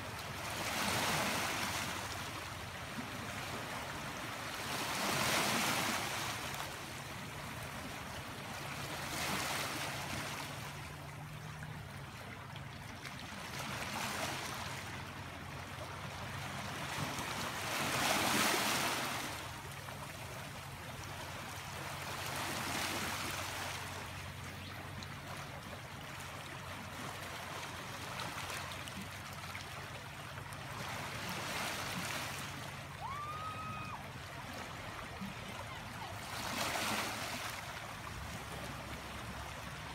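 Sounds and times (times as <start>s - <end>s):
waves washing over rocky shore: 17.5s - 19.4s, 35.5s - 38.3s.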